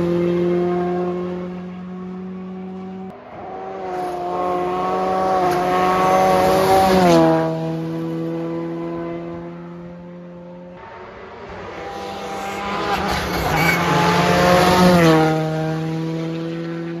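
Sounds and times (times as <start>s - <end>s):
rally car passing at high revs: 0.0s - 17.0s.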